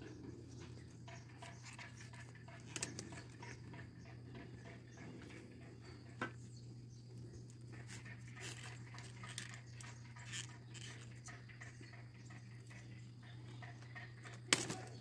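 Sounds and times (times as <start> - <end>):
steady low hum: 0.0 - 15.0
leaves rustling and clicking: 1.6 - 3.5, 7.4 - 11.1, 14.2 - 15.0.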